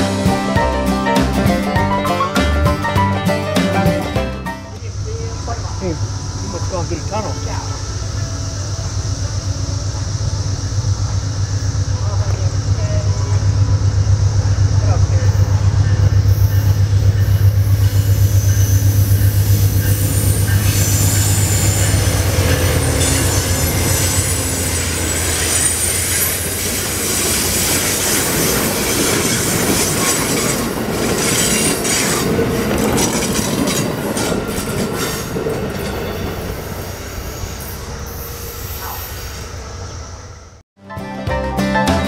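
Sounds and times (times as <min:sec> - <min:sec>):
diesel locomotive drone: 0:00.0 - 0:42.0
train wheels on rails: 0:04.7 - 0:40.6
clickety-clack over rail joints: 0:27.2 - 0:36.3.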